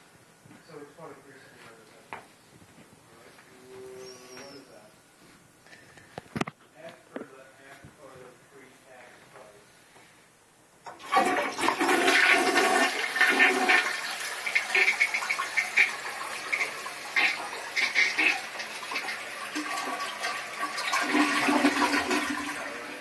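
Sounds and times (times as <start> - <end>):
toilet flushing: 10.9 - 23.0.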